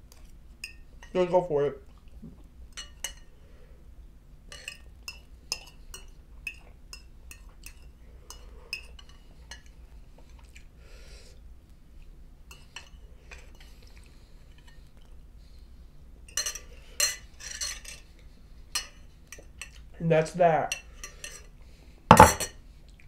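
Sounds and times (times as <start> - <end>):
utensil clinking against bowl: 22.1 - 22.6.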